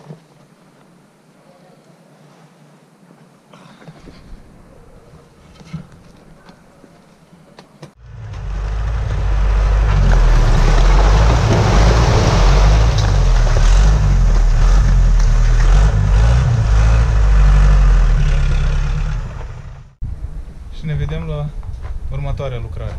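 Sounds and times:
rubble sliding and tumbling: 3.9 - 15.9
truck engine running: 8.0 - 20.0.

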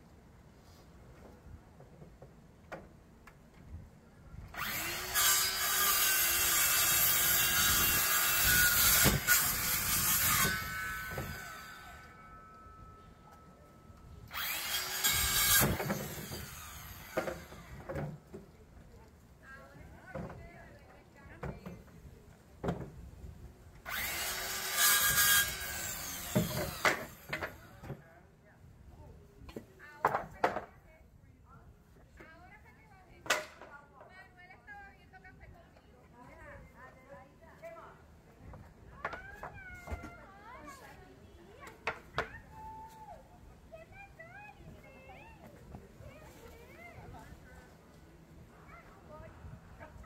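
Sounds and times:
circular saw cutting wood: 4.5 - 12.6, 14.3 - 18.0, 23.8 - 28.0.

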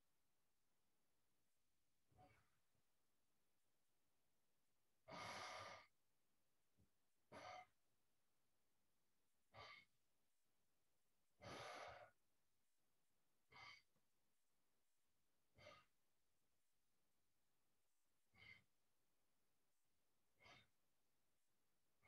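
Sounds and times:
person breathing slowly: 5.0 - 6.0, 11.4 - 12.2, 18.3 - 18.7, 20.4 - 20.8.

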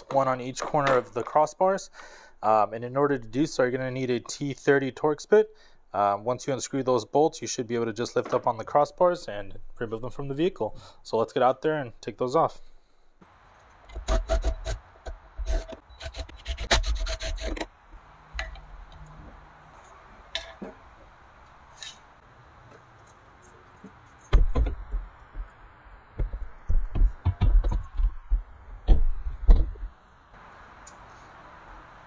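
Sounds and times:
metal rubbing and scraping: 13.9 - 17.7
heavy thumps and clunks: 24.3 - 30.0.

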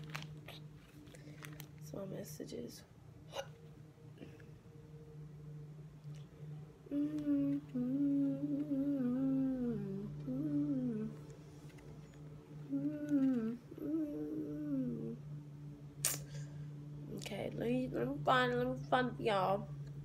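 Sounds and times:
woman humming: 6.8 - 11.4, 12.6 - 15.2.

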